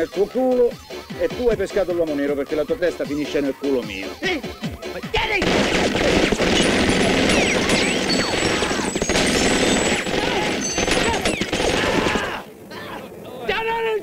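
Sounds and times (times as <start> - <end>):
automatic gunfire: 5.2 - 12.4.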